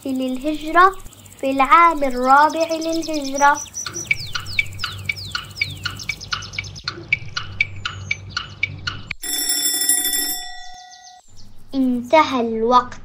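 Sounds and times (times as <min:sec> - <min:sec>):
countdown timer ticks: 0:04.3 - 0:09.8
alarm clock ringing: 0:09.2 - 0:11.2.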